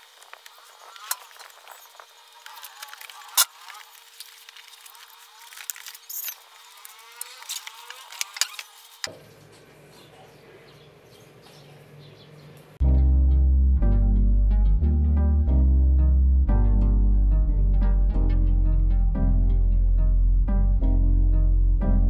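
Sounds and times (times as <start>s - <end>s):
cardboard and paper rustling: 0.0s - 9.1s
quiet background music: 12.8s - 22.0s.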